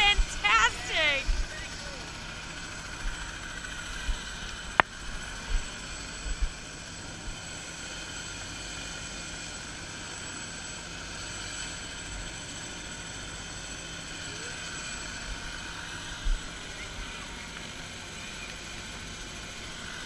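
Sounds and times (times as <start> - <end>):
helicopters whining: 0.0 - 8.0.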